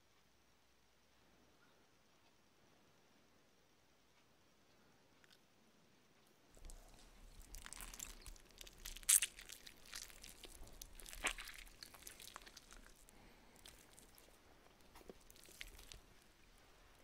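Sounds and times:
crunchy chewing: 0:06.5 - 0:17.0.

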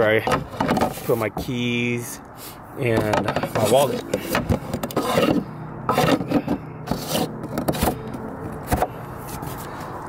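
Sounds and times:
plastic lid scraping: 0:03.0 - 0:08.9.

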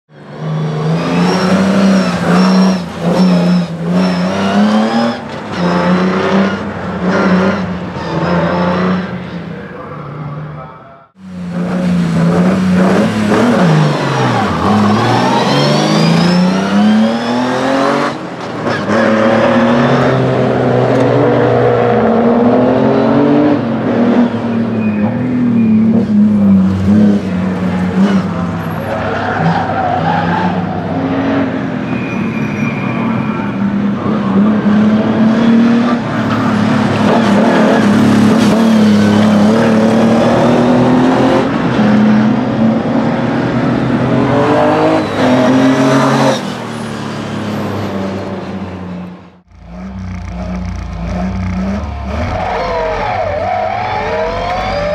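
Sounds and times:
car engine revving: 0:11.0 - 0:31.7, 0:33.9 - 0:54.9.

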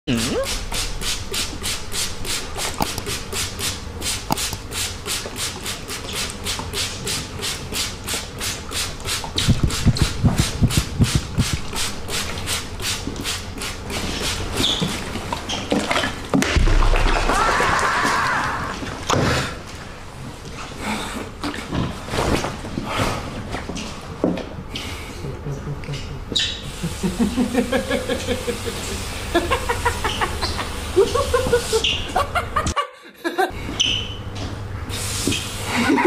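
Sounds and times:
spray bottle squirting: 0:00.3 - 0:14.4
low thumps: 0:09.4 - 0:11.7, 0:16.5 - 0:18.2.

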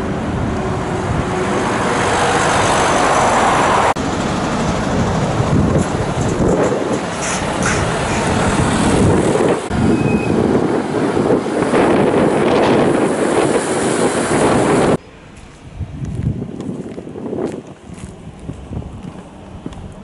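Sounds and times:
trucks driving past: 0:00.0 - 0:20.0
wind on microphone: 0:05.0 - 0:20.0.

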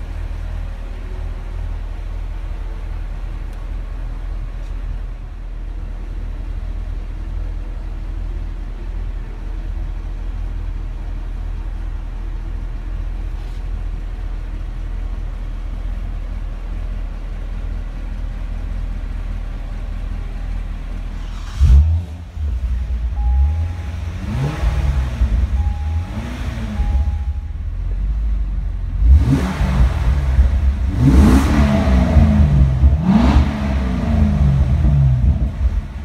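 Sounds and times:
car engine idling: 0:00.0 - 0:36.0
engine revving: 0:21.1 - 0:27.5, 0:28.9 - 0:36.0.

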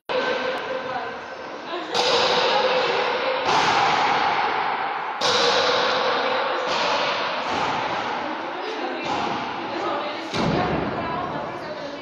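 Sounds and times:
ball struck with wooden paddles: 0:01.9 - 0:02.8, 0:03.4 - 0:08.3, 0:09.0 - 0:11.0.

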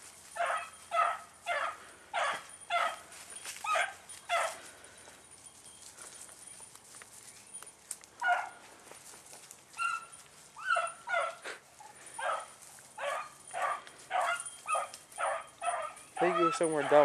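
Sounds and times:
dog baying: 0:00.4 - 0:05.0, 0:08.2 - 0:08.6, 0:09.8 - 0:17.0.

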